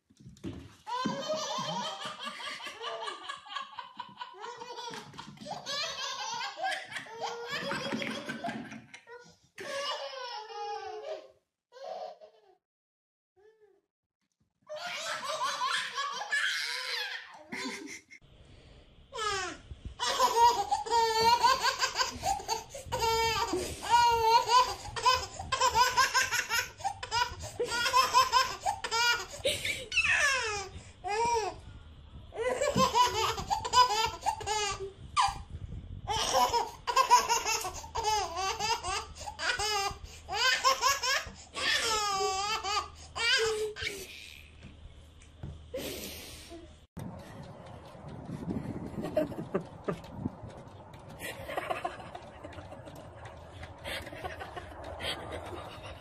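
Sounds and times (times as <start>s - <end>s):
baby laughing: 0.9s - 12.6s, 14.7s - 18.2s, 19.2s - 31.6s, 32.4s - 35.4s, 36.1s - 44.4s.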